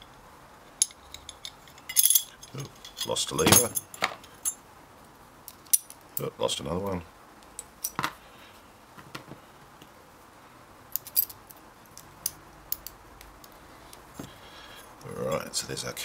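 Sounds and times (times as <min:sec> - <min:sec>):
metallic clicks of lock parts: 0:11.0 - 0:13.6.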